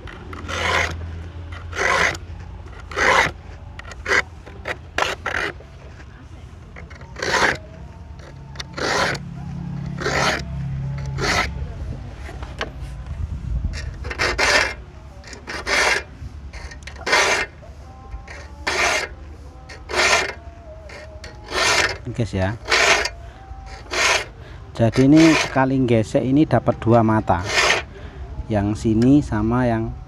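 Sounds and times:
file rasping saw teeth: 0.0s - 6.0s, 6.8s - 11.5s, 13.8s - 17.6s, 18.3s - 25.7s, 27.2s - 27.9s.

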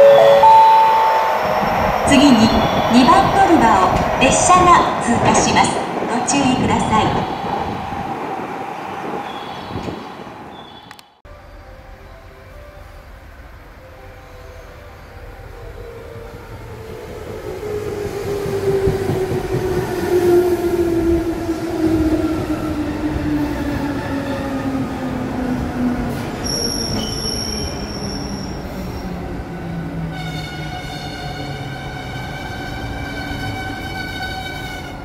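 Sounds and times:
electric train whine: 0.0s - 35.0s
high brake squeal: 10.5s - 11.0s, 26.4s - 29.2s.

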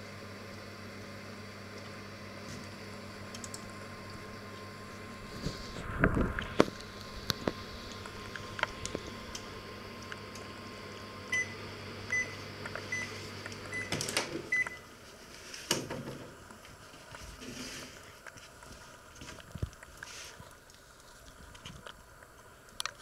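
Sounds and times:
microwave oven humming: 0.0s - 18.5s.

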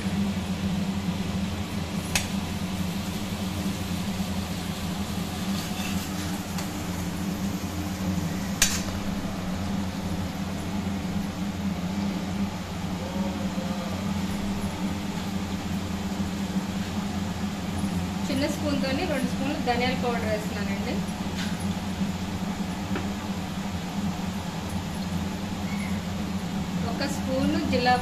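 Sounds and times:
onions sizzling in oil: 2.0s - 9.2s.

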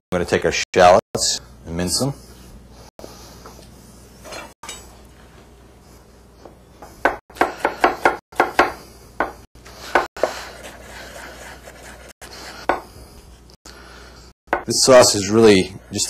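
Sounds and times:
knife chopping on wooden board: 7.0s - 10.4s.

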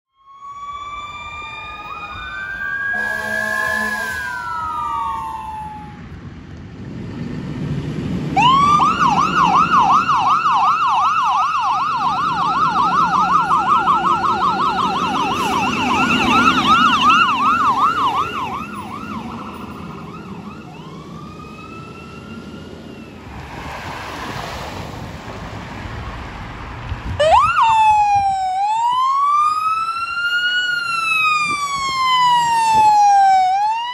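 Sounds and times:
siren yelp: 0.1s - 6.1s, 8.4s - 23.2s, 27.2s - 33.9s
fire engine siren wailing: 0.1s - 6.3s, 8.2s - 24.7s, 27.1s - 33.9s
diesel engine: 0.5s - 33.9s
fire engine horn blast: 2.8s - 6.0s, 15.0s - 16.9s.

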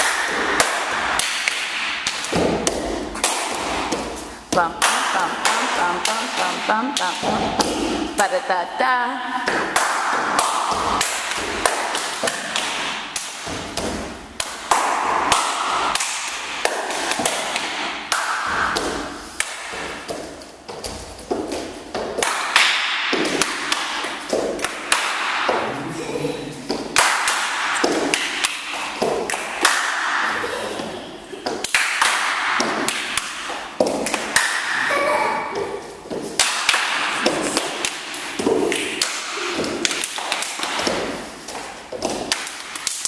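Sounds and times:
hand claps: 0.0s - 2.4s, 9.4s - 13.5s, 14.4s - 19.9s, 22.2s - 25.5s, 26.9s - 30.3s, 31.4s - 34.9s, 36.3s - 41.0s, 42.0s - 43.0s
body slaps: 0.0s - 8.1s, 9.5s - 25.6s, 26.7s - 30.5s, 31.4s - 43.0s.

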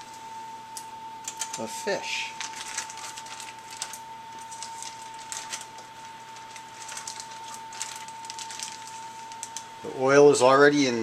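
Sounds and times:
high-pitched hum: 0.0s - 11.0s
plastic bag crinkling: 1.4s - 9.7s.

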